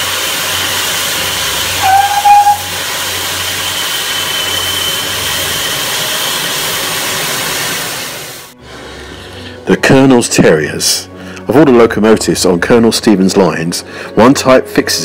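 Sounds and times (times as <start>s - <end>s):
steam hissing: 0.0s - 8.6s
high locomotive whistle blast: 1.6s - 6.5s.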